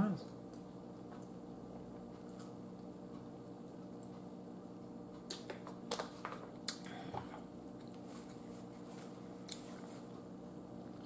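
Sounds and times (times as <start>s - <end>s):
faint room hum: 0.0s - 11.0s
paper napkin rustle: 8.0s - 10.1s.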